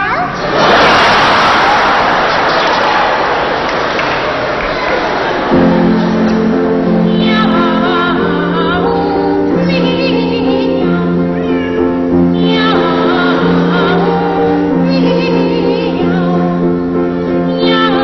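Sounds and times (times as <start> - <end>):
piano accompaniment: 4.6 - 18.0
boys singing meows: 10.9 - 15.1.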